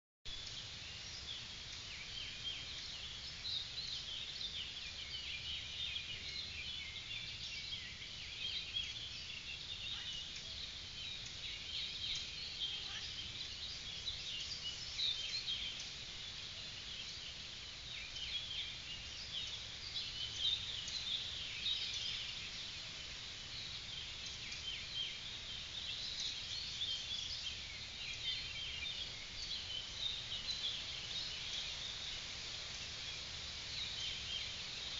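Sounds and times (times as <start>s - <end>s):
birds chirping and singing: 0.3s - 34.9s.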